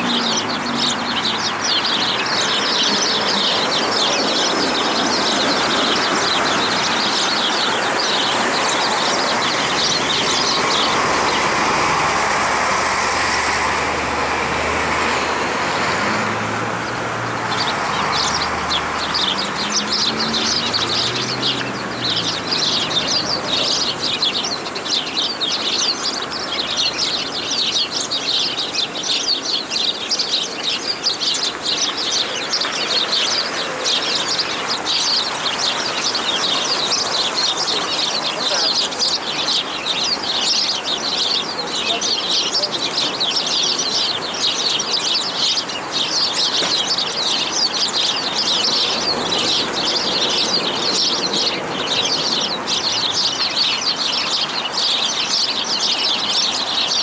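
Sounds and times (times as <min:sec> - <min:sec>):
sparrows chirping: 0:00.0 - 0:57.0.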